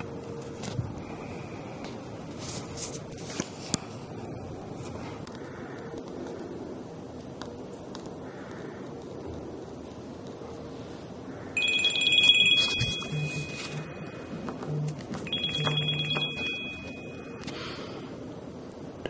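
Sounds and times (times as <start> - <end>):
electronic ring tones: 11.6 - 17.6.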